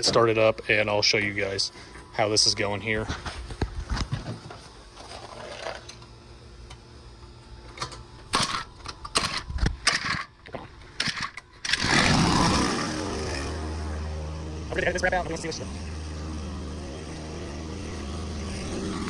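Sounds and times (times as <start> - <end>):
engine pull-started: 11.0 - 13.6.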